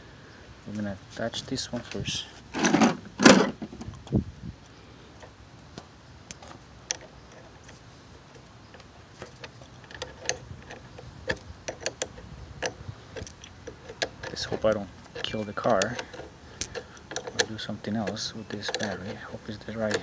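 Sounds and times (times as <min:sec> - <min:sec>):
metal wrench clicking: 0:09.2 - 0:20.0.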